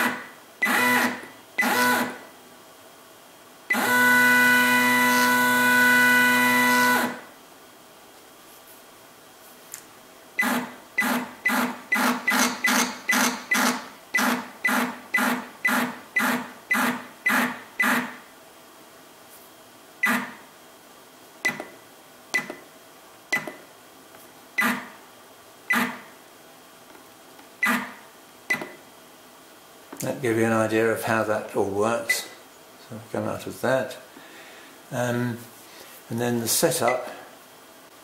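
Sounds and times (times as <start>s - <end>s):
stepper motor buzzing steps: 0.0s - 2.3s, 3.7s - 7.3s, 10.4s - 18.3s, 20.0s - 20.5s, 24.6s - 25.0s, 25.7s - 26.1s, 27.6s - 28.8s.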